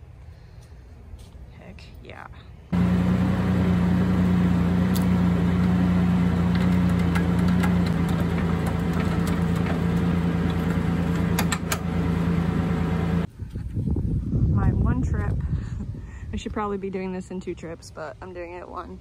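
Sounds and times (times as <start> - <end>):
vehicle engine idling: 2.7 - 13.3.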